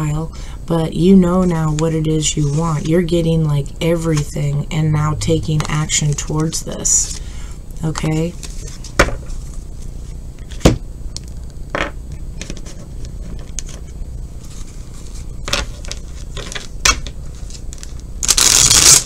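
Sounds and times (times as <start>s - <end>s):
cards being shuffled: 12.4s - 19.0s.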